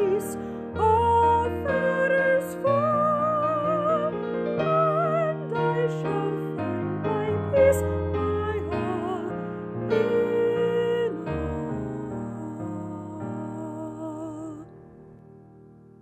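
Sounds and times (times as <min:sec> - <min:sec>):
woman singing a hymn: 0:00.0 - 0:14.7
piano chords: 0:00.0 - 0:16.0.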